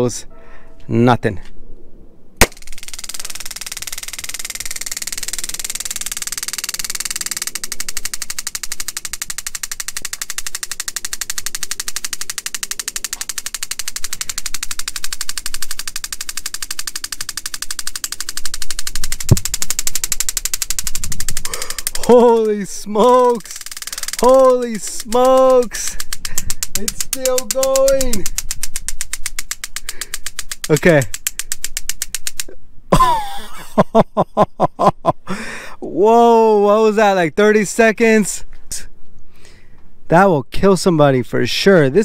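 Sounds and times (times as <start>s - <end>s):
sharp pop of probes firing: 2.4s - 2.7s
rapid electrical clicking: 2.4s - 33.7s.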